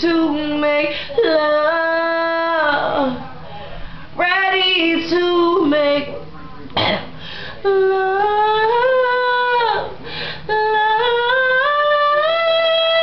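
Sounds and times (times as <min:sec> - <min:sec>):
woman singing unaccompanied: 0:00.0 - 0:03.3, 0:04.2 - 0:06.2, 0:07.6 - 0:13.0
woman breathing: 0:00.9 - 0:01.2, 0:07.2 - 0:07.7, 0:10.0 - 0:10.5.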